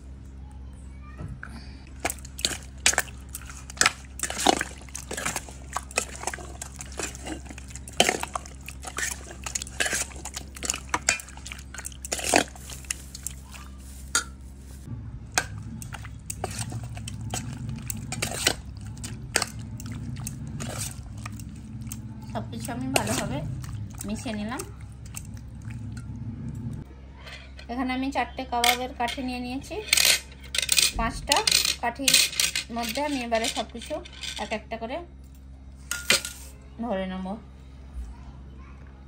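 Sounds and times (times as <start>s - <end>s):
wet squelch of marinade: 1.9s - 26.2s.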